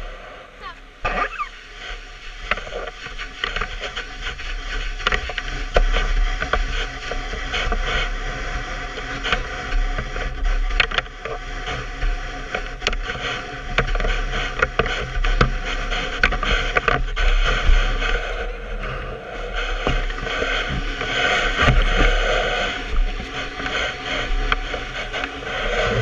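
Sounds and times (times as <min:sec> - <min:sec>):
steady rumble and hiss: 0:17.3 - 0:26.0.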